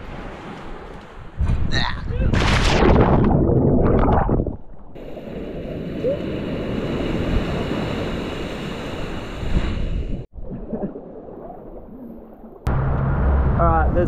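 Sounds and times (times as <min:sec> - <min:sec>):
surf washing on beach: 0:05.0 - 0:10.3.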